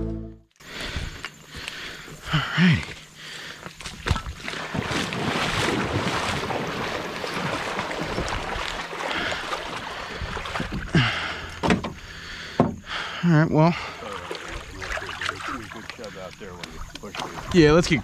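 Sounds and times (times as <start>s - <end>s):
water sloshing: 3.2s - 12.8s, 13.7s - 18.0s.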